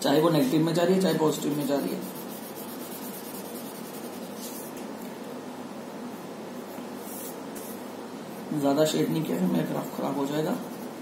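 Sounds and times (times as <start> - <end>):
room hiss: 0.0 - 11.0
pen scratching on paper: 1.3 - 4.7, 10.5 - 11.0.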